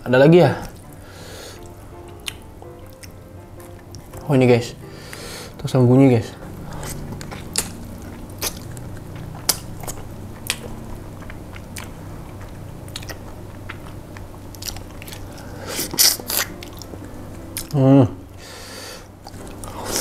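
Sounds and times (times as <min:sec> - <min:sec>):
chewing and sucking: 0:06.6 - 0:17.0.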